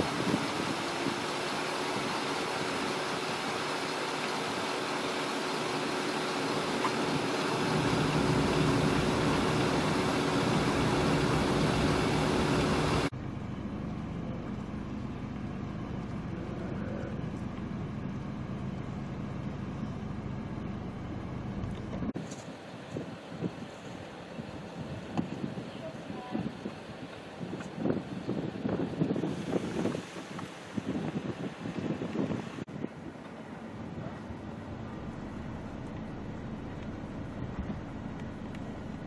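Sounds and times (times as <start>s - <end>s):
vehicle engine and road traffic: 0.0s - 39.0s
lower steady hum: 6.6s - 22.2s.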